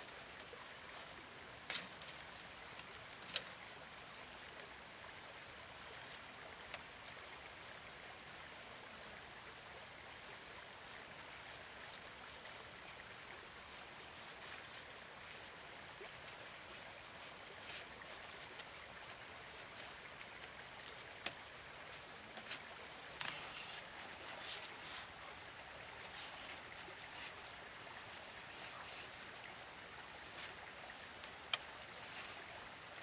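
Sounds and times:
bamboo strips clicking and rustling: 0.0s - 3.7s, 6.0s - 7.2s, 10.5s - 12.8s, 16.0s - 25.2s, 26.0s - 33.0s
faint steady hiss: 0.0s - 33.0s.

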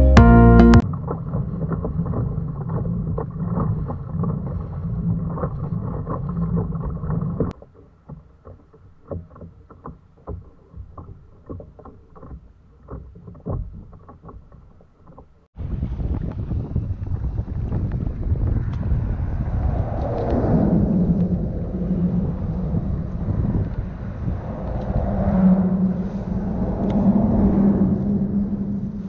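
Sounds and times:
wind on microphone: 0.8s - 7.6s, 15.6s - 29.0s
waves lapping against kayak hull: 0.8s - 15.6s, 20.8s - 29.0s.

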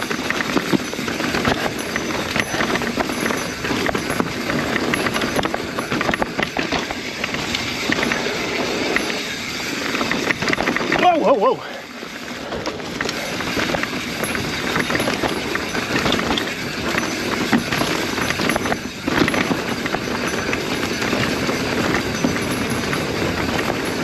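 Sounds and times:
bike clattering and knocking: 0.0s - 24.0s
bike tyres rushing on trail: 0.0s - 24.0s.

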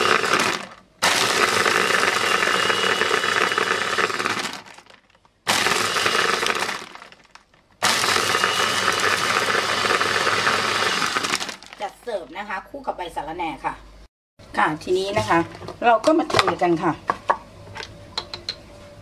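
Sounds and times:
blender crushing ice: 0.0s - 12.0s.

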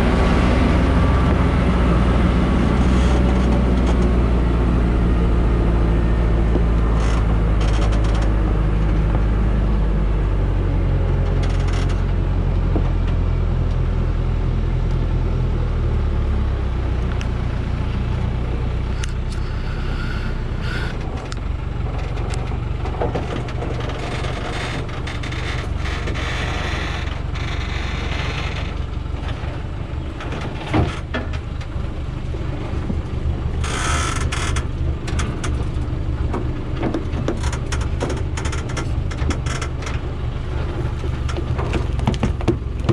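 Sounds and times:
diesel truck engine labouring: 0.0s - 42.9s.

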